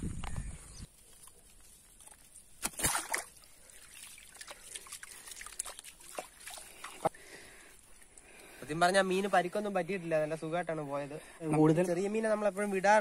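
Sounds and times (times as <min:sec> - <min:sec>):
water dripping: 0:01.1 - 0:08.6
water splashing: 0:01.9 - 0:08.4.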